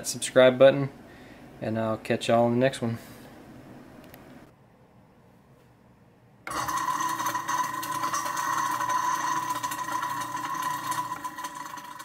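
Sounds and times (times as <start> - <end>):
garbage disposal motor whining: 6.5 - 12.0.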